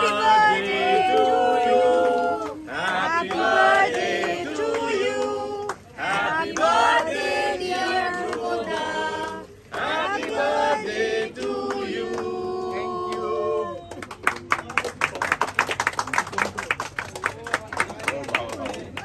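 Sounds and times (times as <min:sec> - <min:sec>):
group singing a birthday song: 0:00.0 - 0:14.0.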